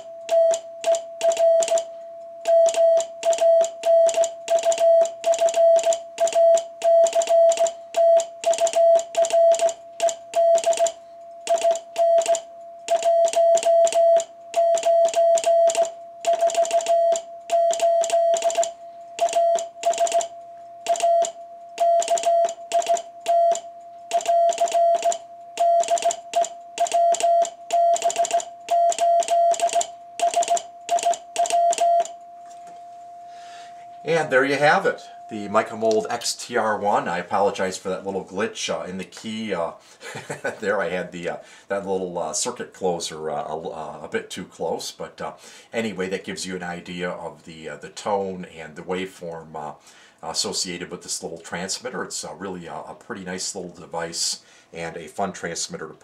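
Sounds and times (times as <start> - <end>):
morse code tone: 0.0 - 37.3
faint steady oscillator note: 0.0 - 37.4.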